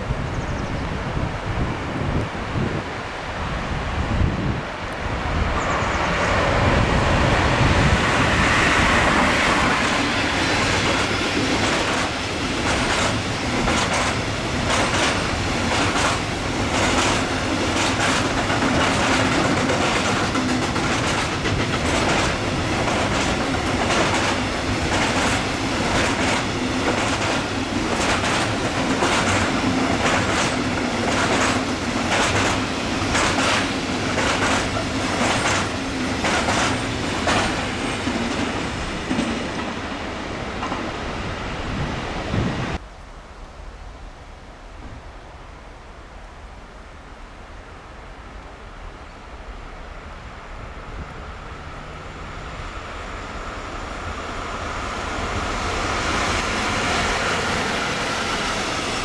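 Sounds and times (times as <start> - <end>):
freight train passing: 0.0 - 42.9, 43.6 - 59.0
wheels clacking over rail joints: 8.8 - 40.0.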